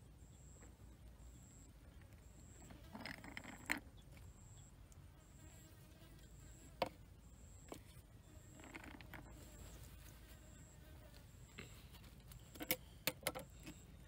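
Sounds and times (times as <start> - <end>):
faint high-pitched pulsing tone: 0.0 - 14.0.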